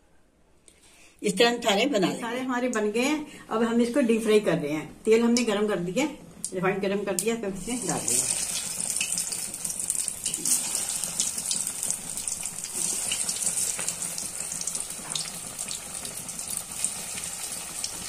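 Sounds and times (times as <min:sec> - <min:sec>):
cutlets deep-frying in hot oil: 0:07.6 - 0:18.0.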